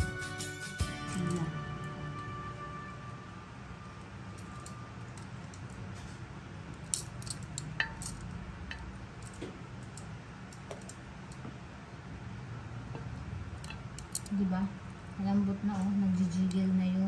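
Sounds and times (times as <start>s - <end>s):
low steady hum: 0.0s - 17.0s
metal tongs clinking on plate: 6.9s - 8.9s.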